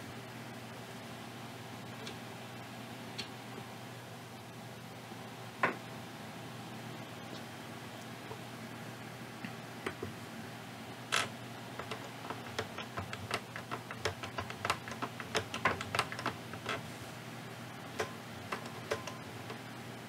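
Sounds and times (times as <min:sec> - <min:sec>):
plastic clicks and taps: 0:11.8 - 0:16.8.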